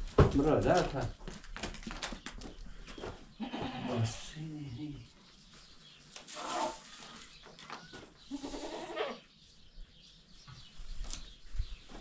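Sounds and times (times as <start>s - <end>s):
livestock bleating: 3.4s - 4.2s, 8.3s - 9.2s.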